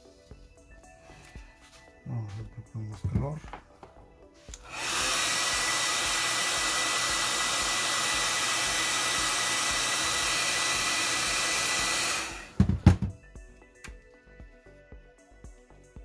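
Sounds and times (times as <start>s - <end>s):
hair dryer blowing: 4.5s - 13.1s.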